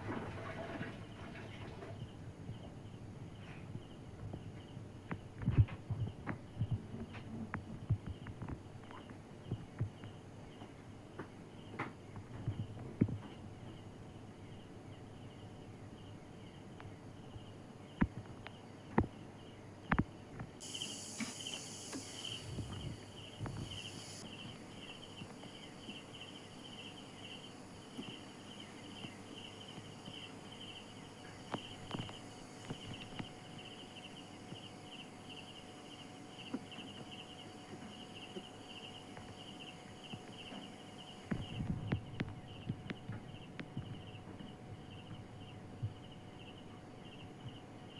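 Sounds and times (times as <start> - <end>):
insects chirping: 0.0 - 47.9
hiss: 20.6 - 24.4.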